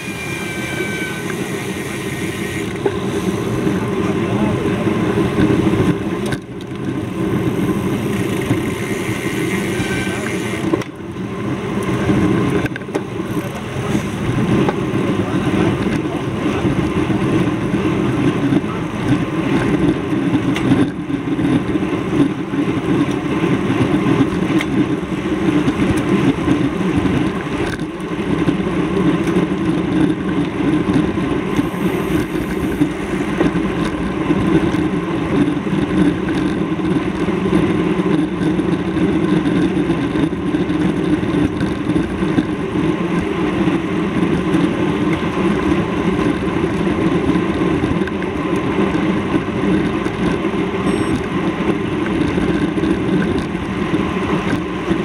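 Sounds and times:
steady vehicle noise: 0.0s - 55.0s.

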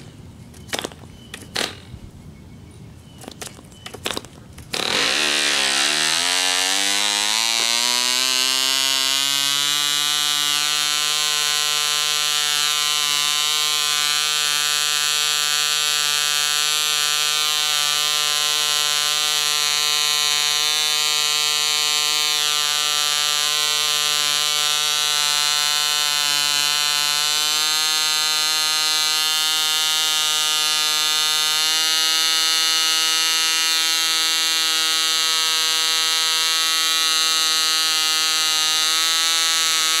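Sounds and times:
diesel model engine buzzing: 4.7s - 40.0s.

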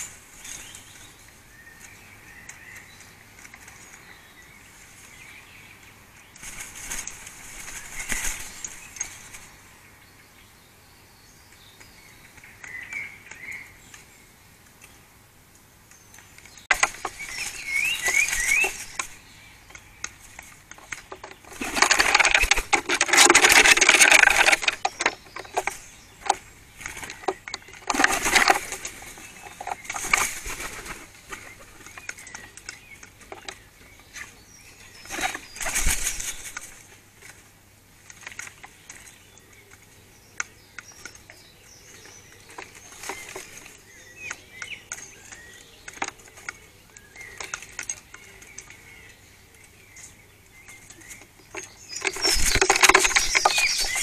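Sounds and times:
bird clicks and calls: 0.0s - 10.4s, 11.3s - 54.0s
small bird singing faintly: 0.0s - 54.0s.

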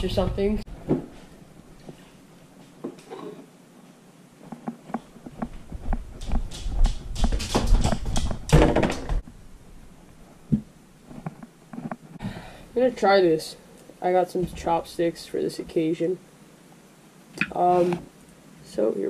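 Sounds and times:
rustling and rumbling: 0.0s - 2.2s, 4.4s - 12.9s.

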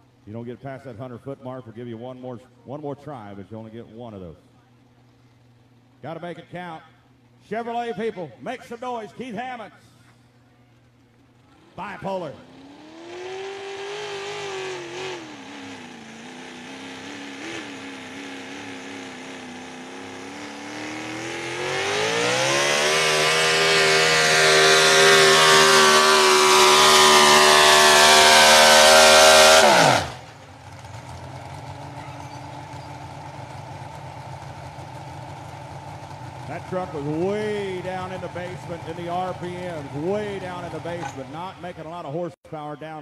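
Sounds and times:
truck engine revving under load: 11.5s - 41.8s.

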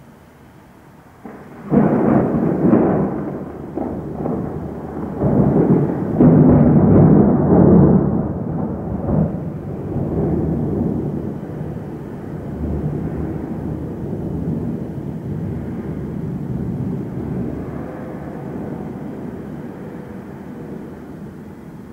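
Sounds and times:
thunder crack and rumbling: 1.2s - 21.9s.

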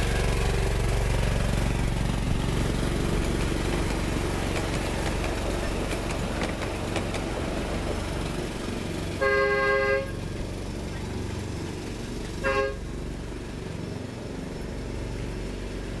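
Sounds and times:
low rumble of train running: 0.0s - 16.0s
miniature train horn tooting: 9.2s - 10.2s, 12.4s - 12.9s.

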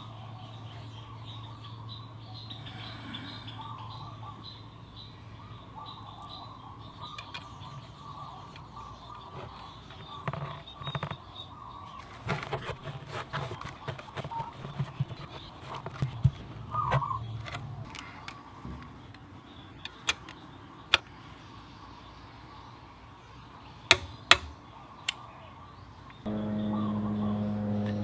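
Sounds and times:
birds chirping: 0.0s - 28.0s
clicks and rubbing from hand work: 11.9s - 19.2s
low steady hum: 26.0s - 28.0s.

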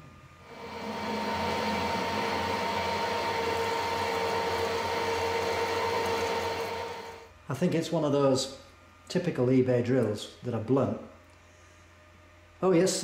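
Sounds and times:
lathe running with hum: 0.4s - 7.3s
drill boring into metal rod: 0.5s - 7.2s.

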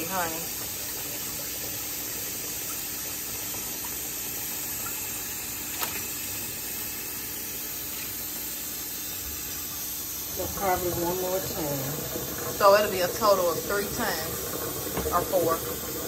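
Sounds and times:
tap running into sink: 4.7s - 6.5s, 10.4s - 16.0s.

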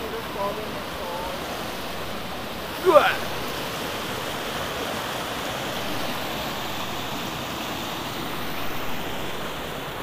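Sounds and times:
stream rushing over rapids: 0.0s - 10.0s.

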